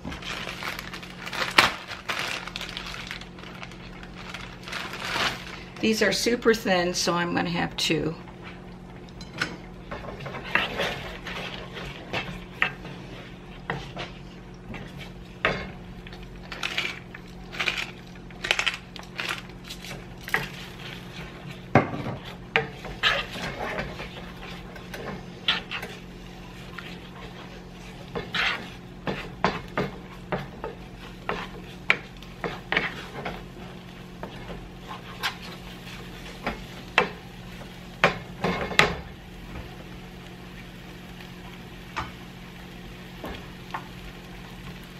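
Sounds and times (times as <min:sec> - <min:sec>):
steady low hum: 0:00.0 - 0:44.9
wooden spatula scraping frying pan: 0:09.9 - 0:15.8, 0:19.3 - 0:38.9.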